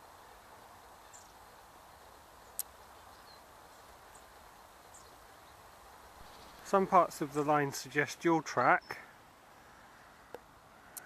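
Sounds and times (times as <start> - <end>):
faint outdoor background noise: 0.0 - 11.0
faint high bird chirps: 2.4 - 5.6, 6.2 - 6.8.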